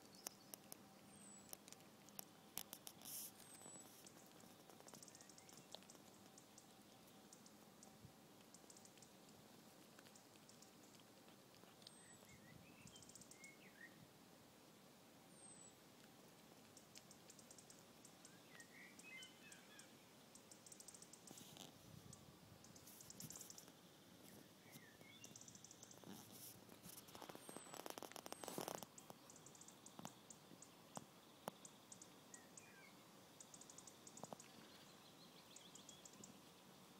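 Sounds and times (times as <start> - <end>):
faint clicks: 0.0 - 12.3, 16.0 - 19.1, 20.3 - 32.7, 33.4 - 34.6
faint high-pitched ticking: 0.0 - 13.6, 15.4 - 34.8, 35.4 - 36.5
cat crunching food: 0.1 - 12.3, 15.8 - 18.2, 25.9 - 29.4.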